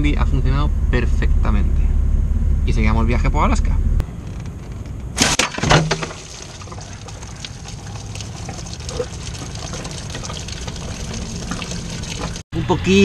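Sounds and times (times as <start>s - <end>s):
liquid trickling: 5.3s - 12.4s.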